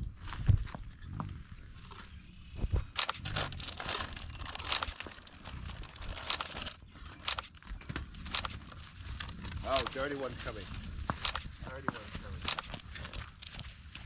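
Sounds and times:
animals crunching food: 0:00.1 - 0:14.0
snack bag crinkling: 0:03.1 - 0:07.6.

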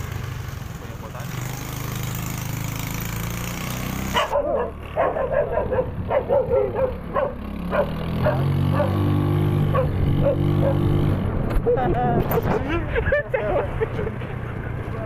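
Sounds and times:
motorcycle engine: 0:00.0 - 0:11.6
dog barking: 0:04.1 - 0:09.1, 0:09.7 - 0:10.8.

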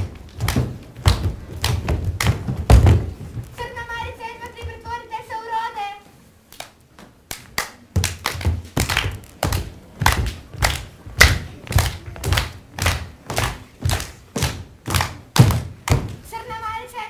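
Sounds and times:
feet stamping: 0:00.0 - 0:05.0, 0:07.9 - 0:16.2
hands clapping: 0:06.5 - 0:16.2.

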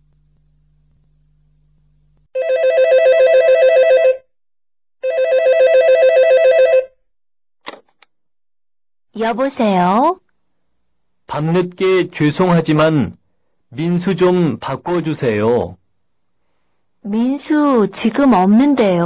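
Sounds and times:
telephone ringing: 0:02.4 - 0:04.3, 0:05.0 - 0:07.0
brief click: 0:07.6 - 0:08.1.

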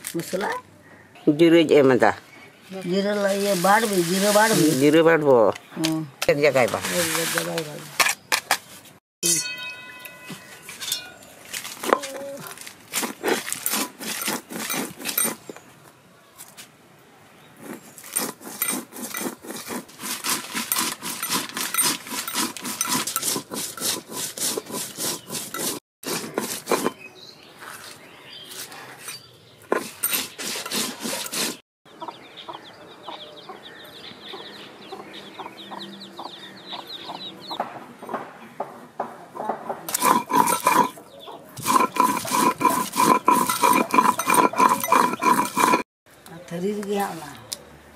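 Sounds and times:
stone roller grinding on stone: 0:03.3 - 0:05.2, 0:10.6 - 0:15.6, 0:17.6 - 0:27.1, 0:29.0 - 0:31.6, 0:39.9 - 0:41.0, 0:41.6 - 0:45.9.

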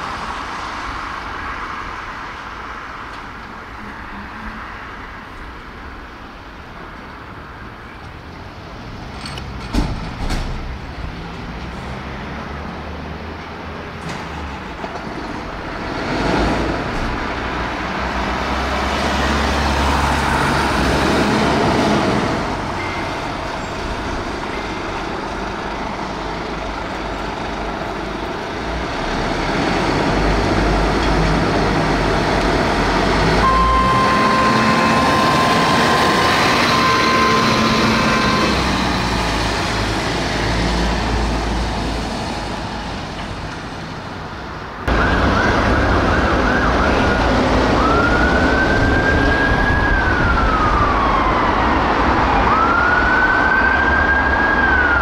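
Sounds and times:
fire engine diesel engine passing: 0:15.4 - 0:44.2, 0:44.8 - 0:55.0
steady high tone: 0:33.4 - 0:39.4
ambulance siren wailing: 0:33.4 - 0:39.8, 0:44.9 - 0:55.0.

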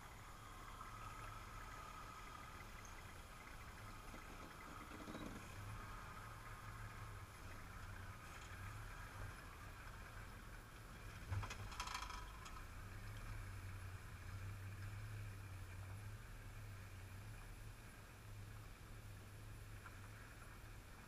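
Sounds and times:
muffled engine drone: 0:00.0 - 0:21.0
brief rattle: 0:11.3 - 0:12.7.

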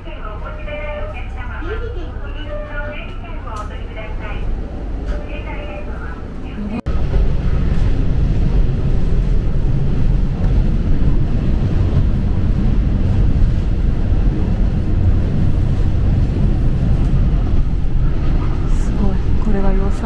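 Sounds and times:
train wheels on rails: 0:06.9 - 0:20.0.

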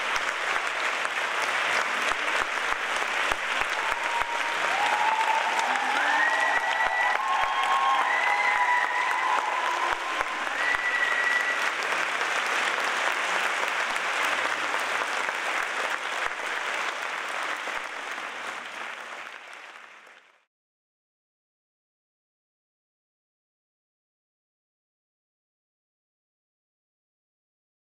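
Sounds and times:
audience applauding: 0:00.0 - 0:20.5
high whoops: 0:03.6 - 0:12.0.

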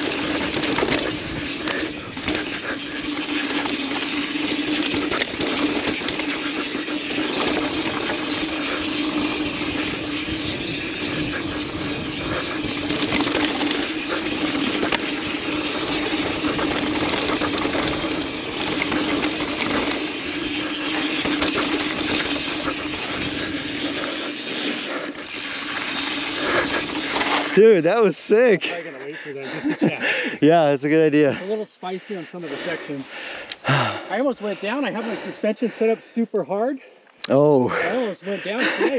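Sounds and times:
steady hum: 0:00.0 - 0:27.9
bike tyres on dirt and rock: 0:00.0 - 0:30.1
bike rattling: 0:00.0 - 0:35.9, 0:37.7 - 0:38.9
wind on microphone: 0:09.4 - 0:13.6.

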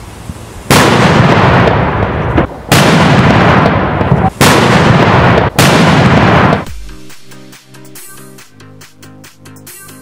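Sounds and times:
firecrackers exploding: 0:00.6 - 0:07.4
long echo of explosions: 0:00.7 - 0:07.3.

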